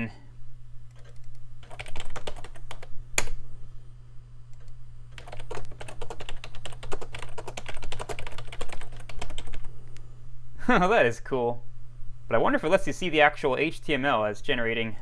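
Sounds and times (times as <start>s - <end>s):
steady low hum: 0.0s - 15.0s
computer keyboard typing: 0.9s - 3.4s, 4.6s - 9.7s.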